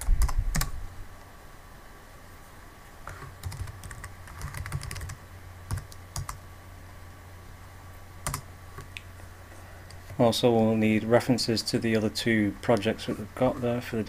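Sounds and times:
faint low hum: 0.0s - 14.0s
keyboard typing: 3.1s - 6.4s, 8.2s - 8.9s.

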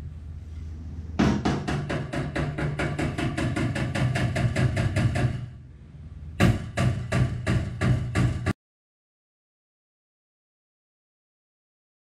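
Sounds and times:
rapid hammer taps on sheet metal: 1.2s - 5.5s, 6.4s - 8.6s.

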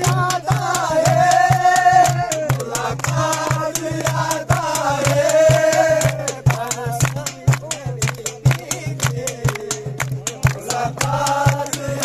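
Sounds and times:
steady percussive beat: 0.0s - 12.0s.

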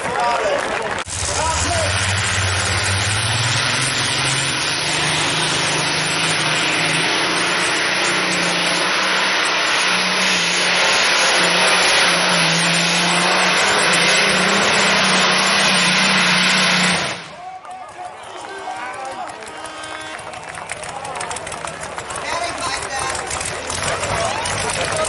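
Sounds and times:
tractor engine drone: 0.0s - 25.0s.

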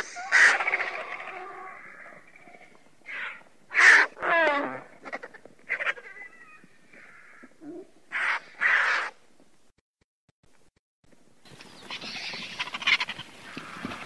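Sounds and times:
falling squealing call: 0.0s - 7.4s, 11.8s - 14.0s
vultures calling harshly: 0.0s - 9.2s, 11.6s - 14.0s.

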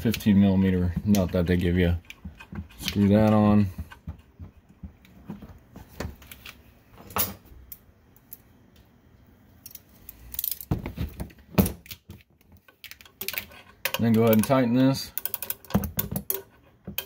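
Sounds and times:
metal tools clinking: 13.0s - 17.0s.

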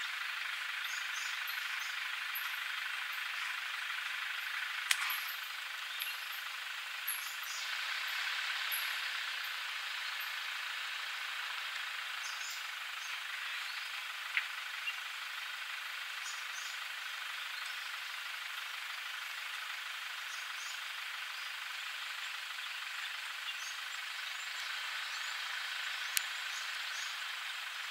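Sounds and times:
steady outdoor hiss: 0.0s - 27.9s
sharp click: 4.9s - 5.3s.

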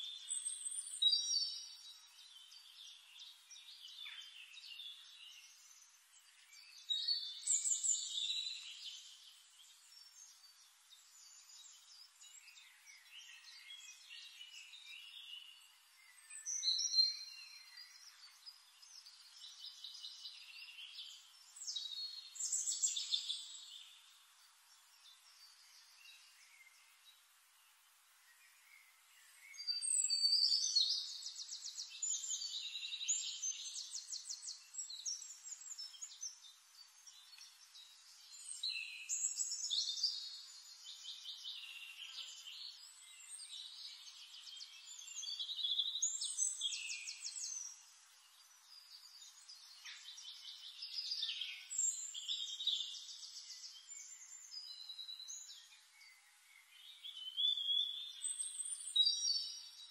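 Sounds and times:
soft bird chirping: 0.0s - 59.9s.

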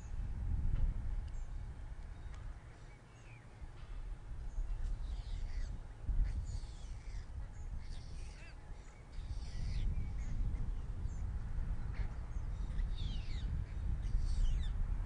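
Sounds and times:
harsh bird calls: 4.5s - 14.8s.

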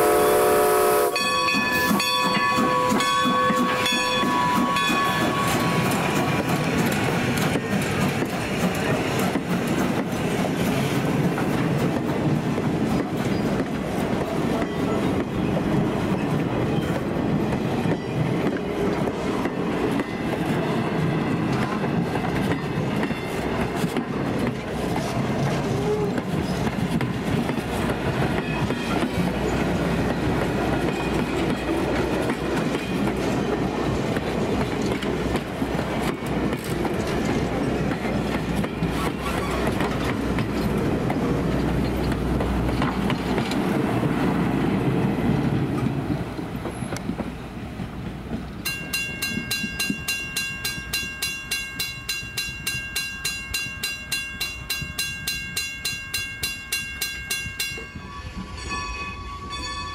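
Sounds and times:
train coaches rumbling past: 0.0s - 59.9s
crossing bell ringing: 1.1s - 6.8s, 48.6s - 59.9s
wheels clicking over rail joints: 1.2s - 59.9s.

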